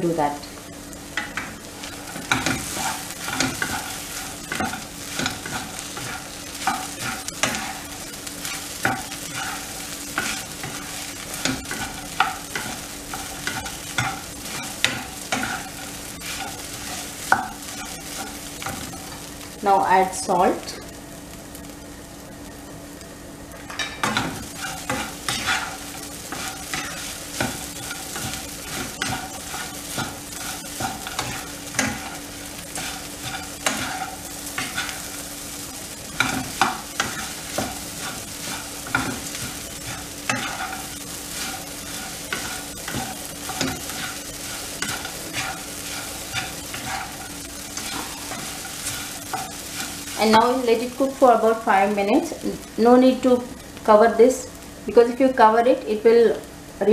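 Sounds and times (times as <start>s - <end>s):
steady sizzle: 0.0s - 56.9s
spatula scraping frying pan: 1.2s - 19.2s, 23.8s - 51.2s.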